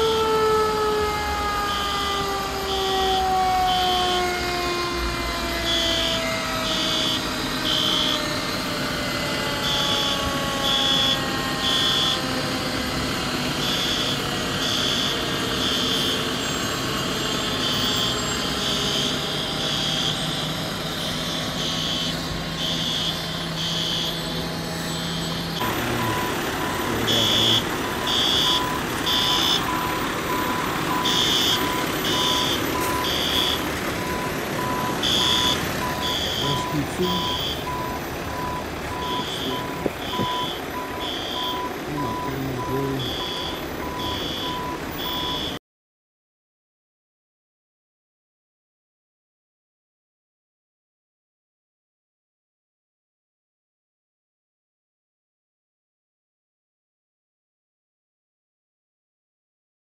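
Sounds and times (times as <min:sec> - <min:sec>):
fire alarm beeping: 0:00.0 - 0:45.6
fire truck engines running: 0:00.0 - 0:45.6
siren winding down: 0:00.0 - 0:45.6
lower faster beeping: 0:05.5 - 0:45.6.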